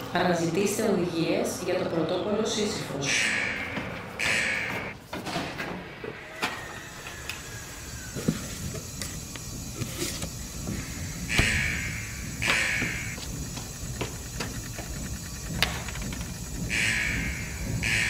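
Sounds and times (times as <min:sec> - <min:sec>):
strong hissing pulses: 0:05.8 - 0:18.0.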